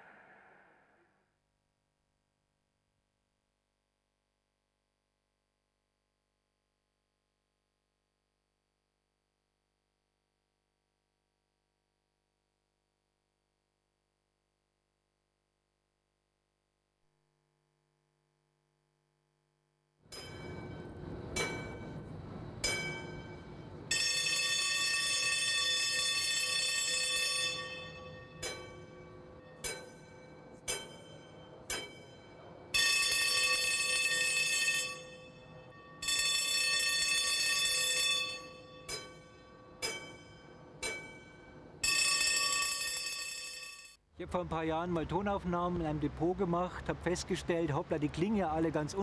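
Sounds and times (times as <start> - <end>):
tram warning bells ringing: 20.1 - 49.0.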